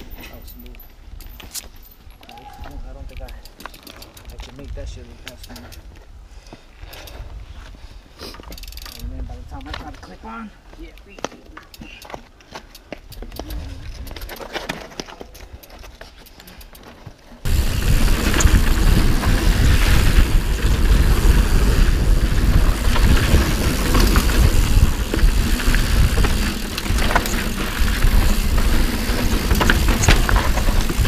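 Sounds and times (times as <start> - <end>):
bike rattling on trail: 0.0 - 6.0, 11.3 - 31.0
wind buffeting camera: 13.0 - 14.6, 17.4 - 31.0
bike tyres crunching on rock: 16.8 - 31.0
tyres knocking over dirt: 22.6 - 31.0.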